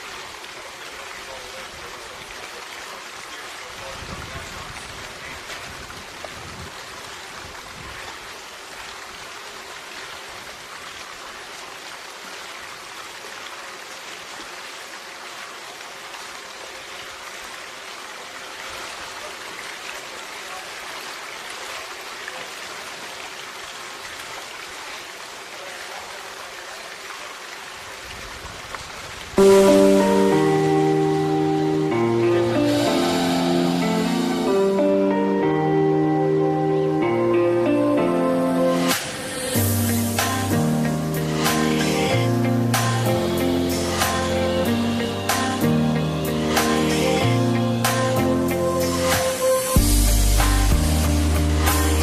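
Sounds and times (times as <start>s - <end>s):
steady hiss: 27.8s - 35.8s, 38.4s - 52.0s.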